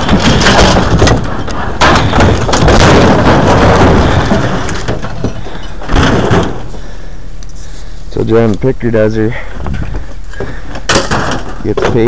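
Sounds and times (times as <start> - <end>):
scrap metal crashing and clattering: 0.0 - 7.0, 10.4 - 12.0.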